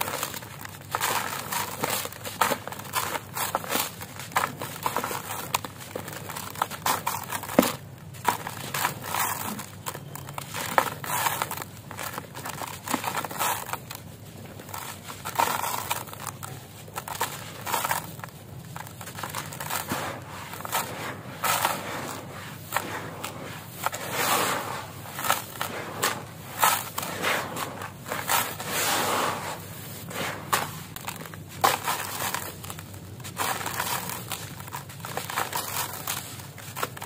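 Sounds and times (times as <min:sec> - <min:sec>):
hands rubbing through loose grit: 0:18.8 - 0:32.5.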